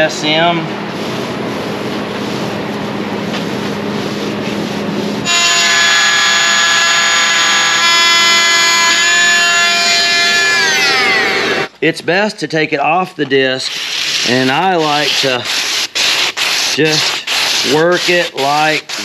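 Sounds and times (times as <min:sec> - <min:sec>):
workshop background noise: 0:00.0 - 0:19.0
oscillating multi-tool buzzing: 0:05.3 - 0:11.7.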